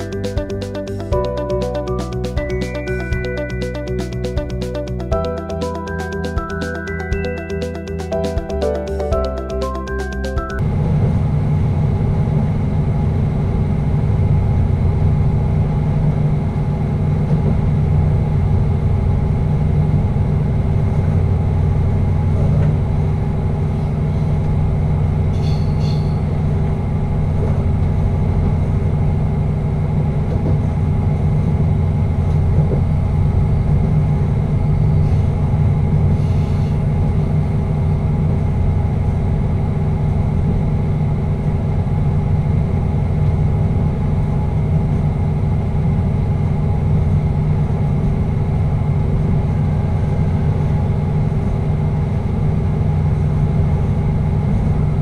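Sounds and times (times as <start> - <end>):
train engine drone and rumble: 10.6 - 55.0.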